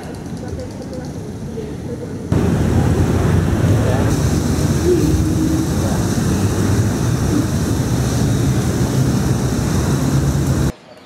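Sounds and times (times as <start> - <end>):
loud rushing noise: 2.3 - 10.7
vehicle engine running: 2.3 - 10.7.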